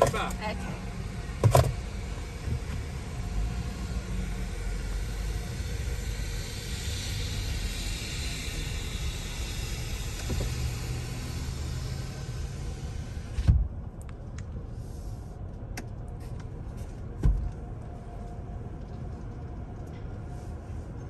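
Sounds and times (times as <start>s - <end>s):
engine low rumble from cabin: 0.0s - 21.0s.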